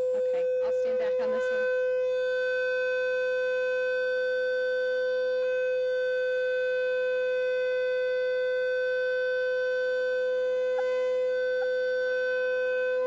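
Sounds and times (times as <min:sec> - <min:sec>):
loudspeaker steady tone: 0:00.0 - 0:06.0, 0:09.2 - 0:13.0.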